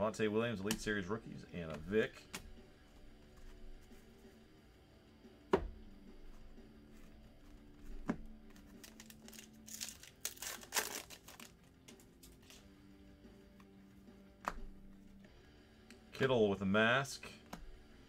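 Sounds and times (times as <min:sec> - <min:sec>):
foil wrapper tearing and crinkling: 0:08.6 - 0:11.7.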